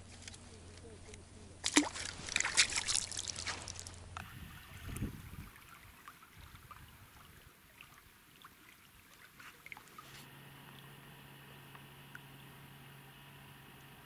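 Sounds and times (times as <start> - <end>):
faint riverbank ambience: 0.0 - 14.0
water splashing in shallows: 1.6 - 10.3.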